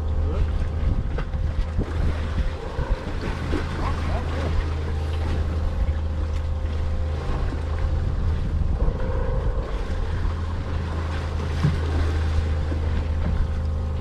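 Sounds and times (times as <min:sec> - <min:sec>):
boat engine running: 0:00.0 - 0:14.0
water around hull: 0:00.0 - 0:14.0
wind buffeting microphone: 0:00.0 - 0:14.0.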